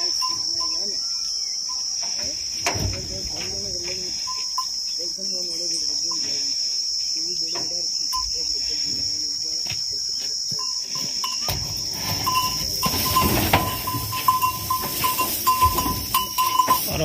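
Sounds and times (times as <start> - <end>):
crickets chirring: 0.0 - 17.0
rustling and knocks: 10.6 - 17.0.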